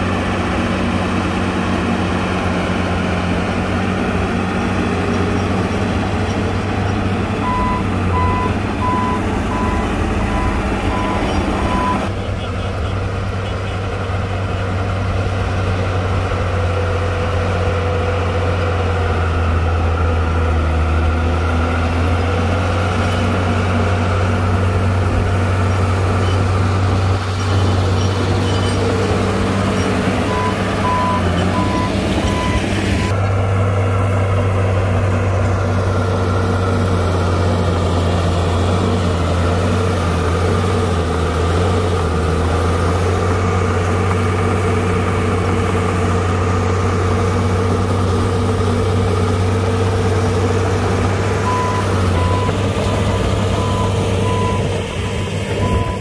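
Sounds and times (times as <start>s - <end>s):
heavy diesel engine humming: 0.0s - 56.0s
back-up alarm beeps: 7.4s - 12.1s, 51.5s - 56.0s.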